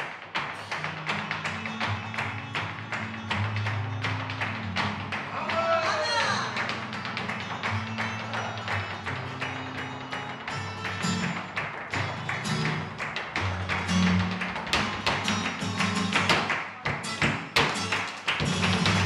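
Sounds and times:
flamenco-style music: 0.0 - 19.0.

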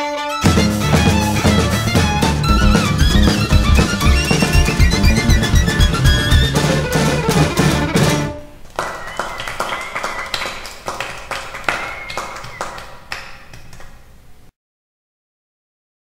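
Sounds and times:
fiddle band music: 0.0 - 8.6.

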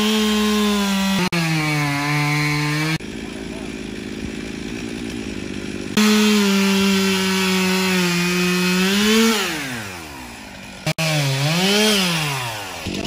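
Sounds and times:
chainsaw cutting stump: 0.0 - 13.0.

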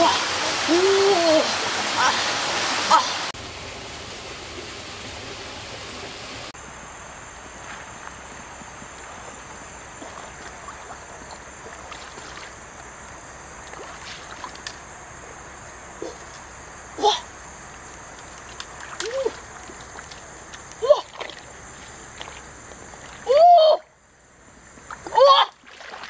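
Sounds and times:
bright rushing hiss: 0.0 - 6.6
stream running over rocks: 0.0 - 23.4, 24.6 - 26.0
splashes of wading: 7.6 - 14.9, 17.7 - 23.6, 24.8 - 26.0.

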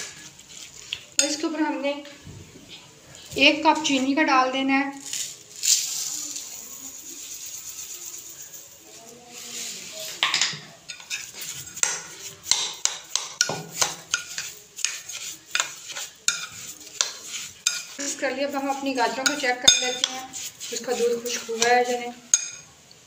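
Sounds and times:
sugar pouring hiss: 5.0 - 10.2
metal spoon scraping glass bowl: 10.9 - 22.7.

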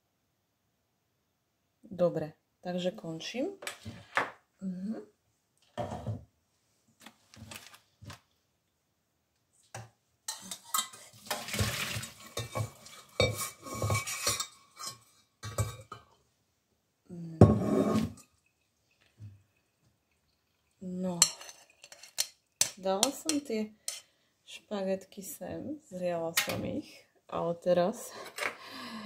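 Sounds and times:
metal pot and lid clanking: 10.3 - 16.1
water pouring: 10.5 - 14.3, 17.7 - 22.8.

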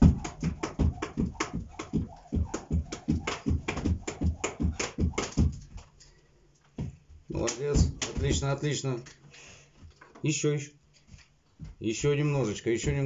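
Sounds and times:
feet landing: 0.0 - 6.0, 6.7 - 8.6, 12.8 - 13.0
skipping rope slapping carpet: 0.0 - 6.0, 6.8 - 8.6.

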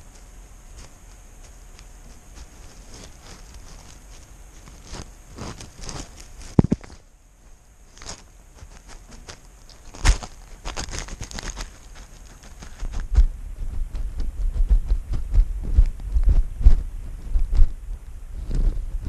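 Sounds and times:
camera rubbing and knocking: 0.8 - 7.0, 7.9 - 17.8, 18.4 - 19.0
low thuds and bumps: 12.6 - 19.0.

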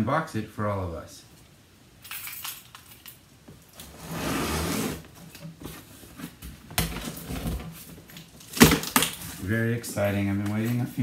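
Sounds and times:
cardboard box scraping: 3.9 - 5.1.

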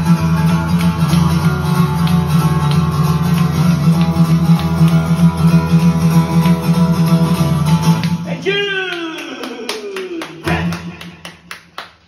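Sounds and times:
acoustic guitar strumming: 0.0 - 8.7
people clapping: 0.0 - 12.0.

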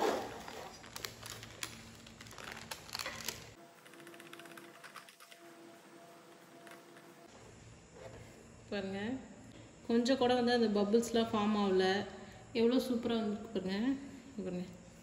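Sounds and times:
parchment paper crinkling: 0.3 - 5.5.

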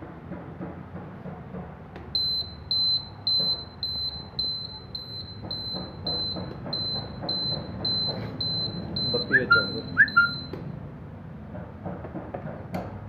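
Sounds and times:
scooter buzzer high-pitched beeps: 2.2 - 10.6.

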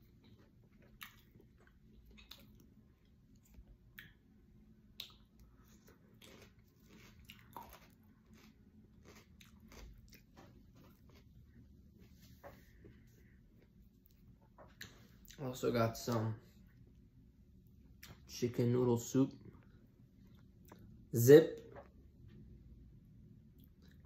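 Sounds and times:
close chewing: 0.0 - 4.2, 5.0 - 11.7
wet mouth clicks: 3.9 - 4.2, 5.0 - 5.4.

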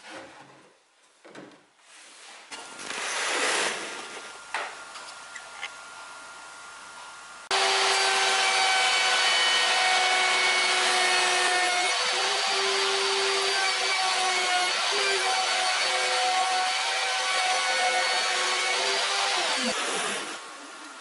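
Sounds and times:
spindle moulder whine cutting wood: 7.5 - 20.6.

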